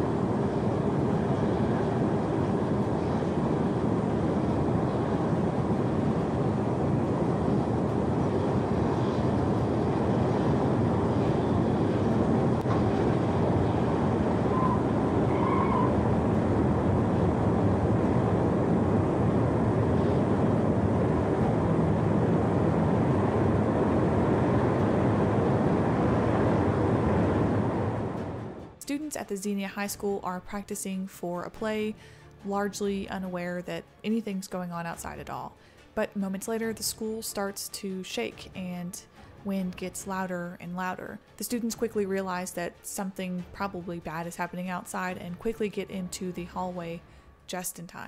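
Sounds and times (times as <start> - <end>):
tornado roaring: 0.0 - 28.8.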